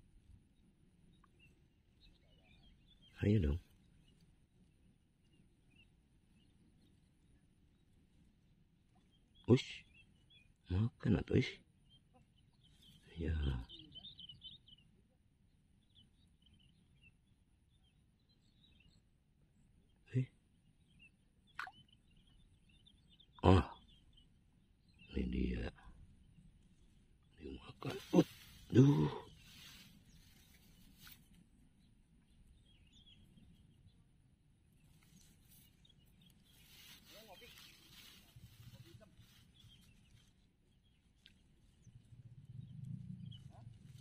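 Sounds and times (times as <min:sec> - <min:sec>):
faint bird chirps: 0:00.1 - 0:44.0.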